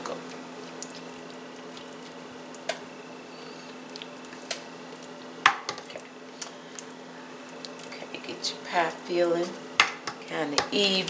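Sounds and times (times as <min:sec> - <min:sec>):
steady hum: 0:00.0 - 0:11.0.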